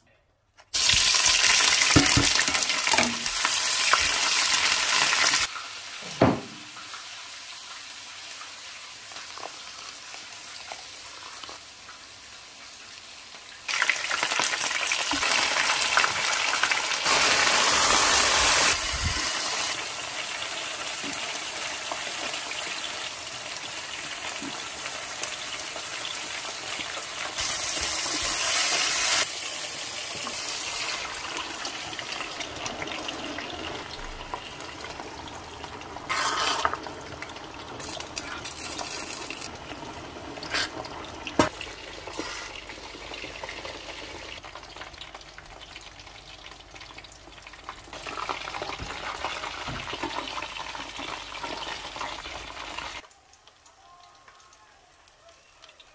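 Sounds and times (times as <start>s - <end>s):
vegetables sizzling in a pan: 0.7s - 55.9s
spatula stirring: 36.1s - 36.8s.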